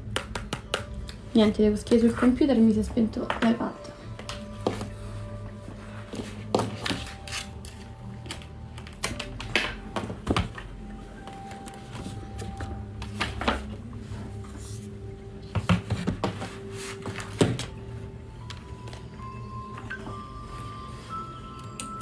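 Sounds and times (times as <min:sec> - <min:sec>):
soft background music: 0:00.0 - 0:22.0.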